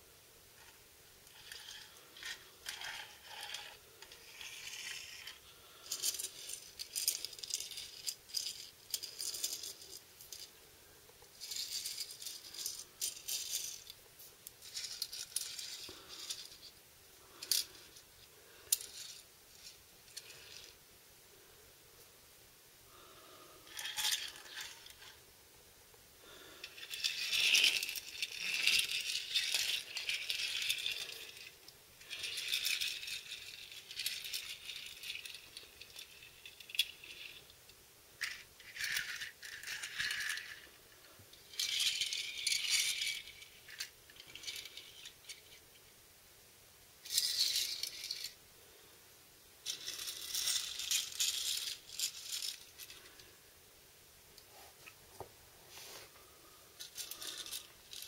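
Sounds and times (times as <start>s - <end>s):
toy car wheels rattling on floor: 0.6s - 10.5s, 11.3s - 20.8s, 23.6s - 25.2s, 26.2s - 37.6s, 38.2s - 45.7s, 47.0s - 48.4s, 49.6s - 53.4s, 56.8s - 58.0s.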